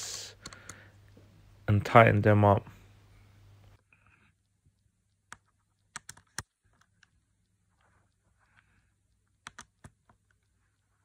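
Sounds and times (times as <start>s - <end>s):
small handling noises: 3.6s - 11.0s.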